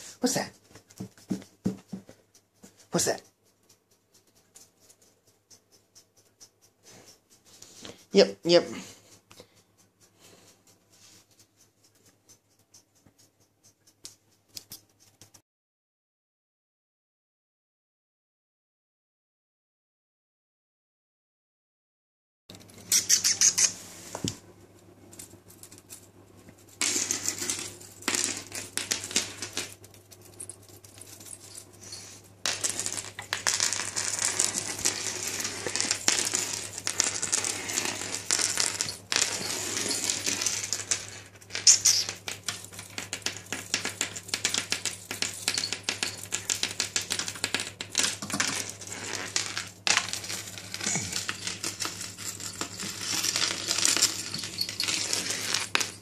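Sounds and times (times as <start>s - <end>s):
small metal rings jingling: 26.6s - 56.0s.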